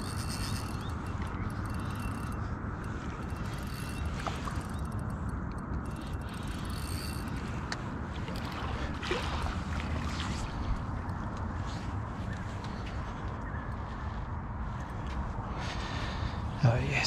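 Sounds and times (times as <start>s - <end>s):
fishing reel winding: 0.0s - 8.6s
wind rumbling on microphone: 0.0s - 17.0s.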